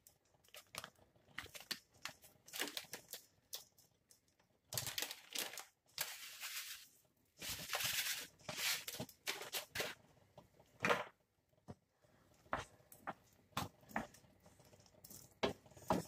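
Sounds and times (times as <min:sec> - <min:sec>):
plastic packet rustling: 0:00.4 - 0:03.7, 0:04.7 - 0:10.0.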